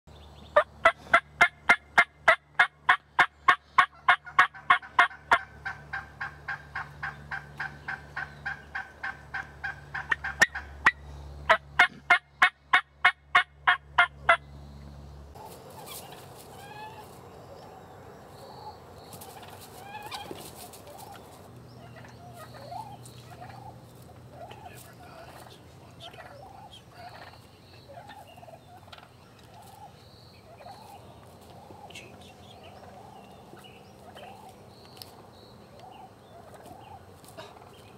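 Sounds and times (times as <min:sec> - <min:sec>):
turkey hens yelping: 0:00.6 - 0:14.4, 0:15.4 - 0:17.2, 0:18.6 - 0:35.1, 0:35.7 - 0:37.9.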